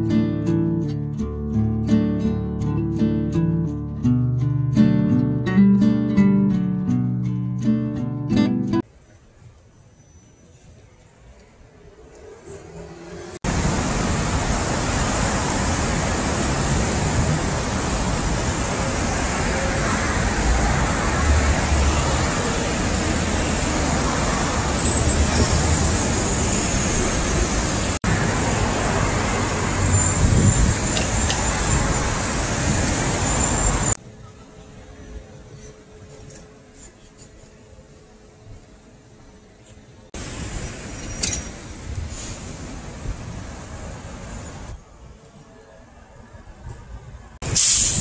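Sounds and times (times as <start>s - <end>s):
cars and scooters driving past: 11.6s - 36.6s.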